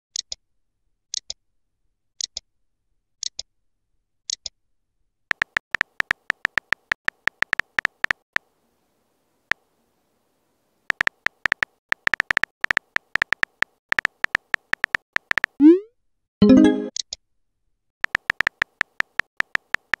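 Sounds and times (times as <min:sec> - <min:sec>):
keyboard tap ticks: 0:05.3 - 0:08.2, 0:10.9 - 0:15.6, 0:18.0 - 0:20.0.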